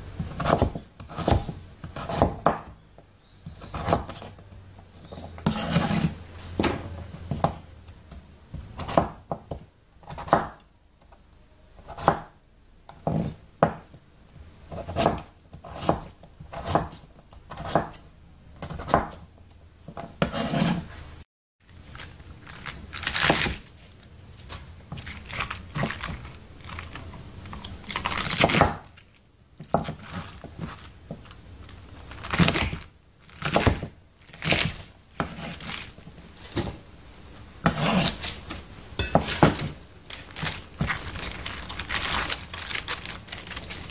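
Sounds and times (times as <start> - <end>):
knife chopping on wooden board: 0.2 - 2.7, 5.2 - 7.6, 8.8 - 10.6, 14.7 - 18.0, 18.6 - 19.2, 19.9 - 20.8, 33.4 - 35.7, 37.6 - 38.3, 39.0 - 39.8
vegetables scraping and rustling: 3.6 - 7.5, 20.2 - 43.9.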